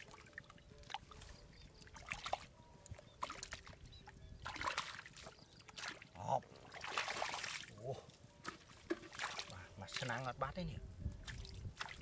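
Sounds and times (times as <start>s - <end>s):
hands squelching through wet mud: 0.8s - 2.5s, 4.4s - 10.3s, 11.2s - 12.0s.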